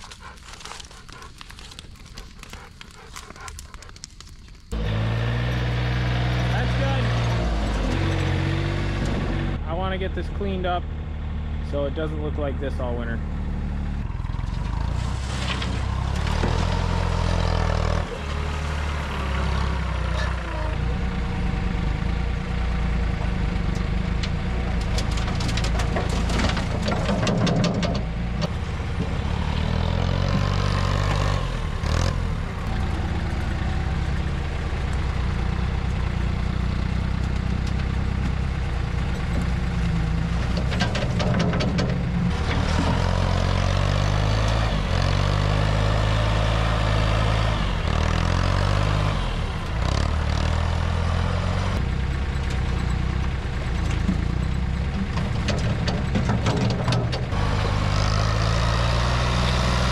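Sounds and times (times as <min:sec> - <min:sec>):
diesel engine running: 0:00.0 - 0:59.9
clattering: 0:24.7 - 0:29.1, 0:39.0 - 0:43.2, 0:53.6 - 0:57.4.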